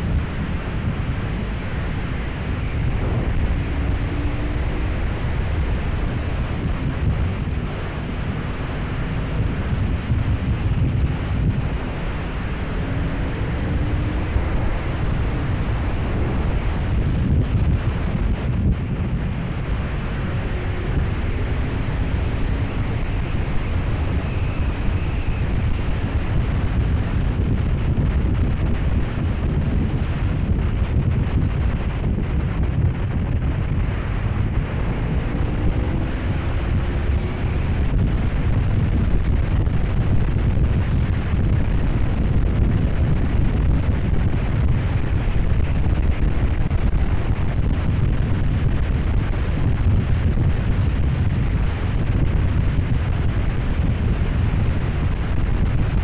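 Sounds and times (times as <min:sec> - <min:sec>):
wind buffeting microphone: 0:00.0 - 0:56.0
motorcycle engine: 0:01.2 - 0:27.4.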